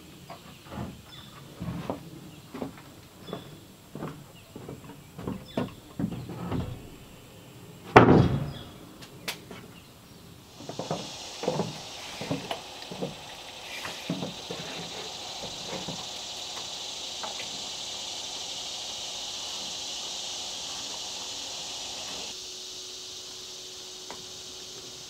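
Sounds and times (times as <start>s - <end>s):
footsteps on wooden deck: 0.3s - 7.1s, 10.6s - 17.6s
high insect buzz: 10.3s - 25.0s.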